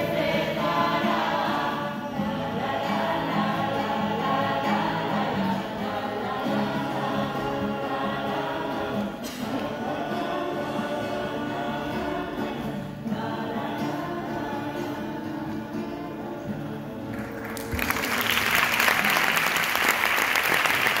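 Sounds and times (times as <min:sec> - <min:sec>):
group of voices singing: 0:00.0 - 0:17.8
strummed acoustic guitars: 0:00.0 - 0:18.1
applause: 0:17.1 - 0:21.0.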